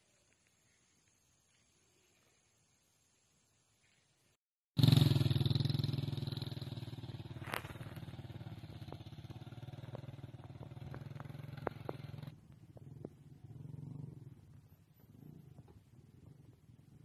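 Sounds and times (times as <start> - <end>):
small motorcycle engine running: 4.8 - 14.5.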